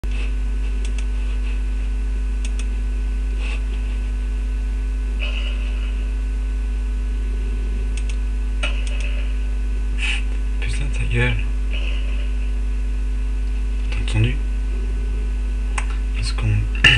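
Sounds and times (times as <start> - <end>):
electrical mains hum: 0.0 - 16.9
faint clicks: 2.4 - 2.7, 7.9 - 8.2.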